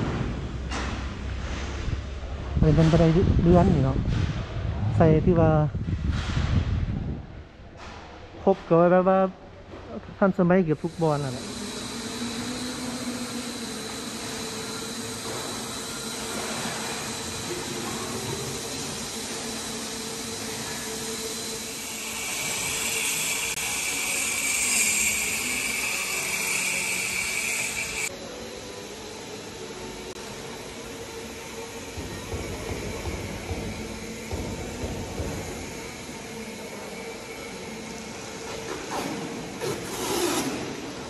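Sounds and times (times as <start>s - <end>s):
machine hum and hiss: 0.0s - 41.0s
power tool high hissing: 10.7s - 38.5s.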